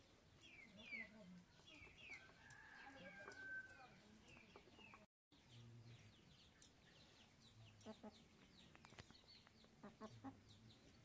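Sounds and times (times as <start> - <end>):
small birds chirping: 0.0 - 11.0
chickens clucking: 7.6 - 10.9.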